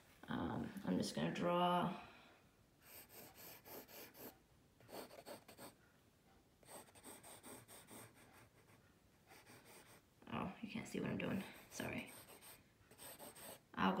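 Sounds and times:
pencil scratching on paper: 2.8s - 5.8s, 6.6s - 10.0s, 11.4s - 14.0s.

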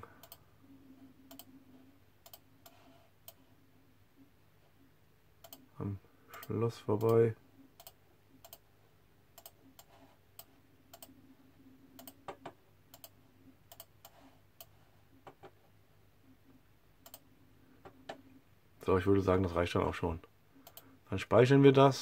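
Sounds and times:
faint low hum: 0.0s - 22.0s
computer mouse clicks: 0.2s - 0.4s, 1.2s - 1.6s, 2.2s - 3.4s, 5.4s - 5.7s, 6.3s - 7.2s, 7.8s - 8.7s, 9.3s - 11.2s, 11.9s - 15.6s, 17.0s - 18.2s, 20.6s - 21.0s.

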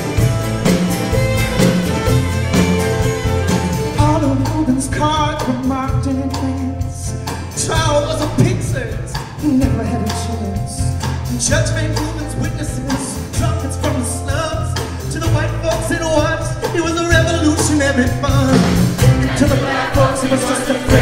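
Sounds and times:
acoustic guitar strumming: 0.0s - 4.8s.

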